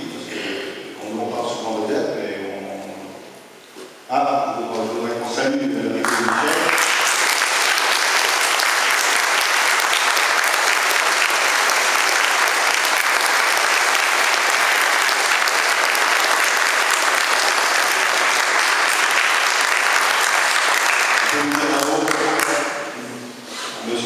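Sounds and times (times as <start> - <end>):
audience applauding: 6.0 - 23.0.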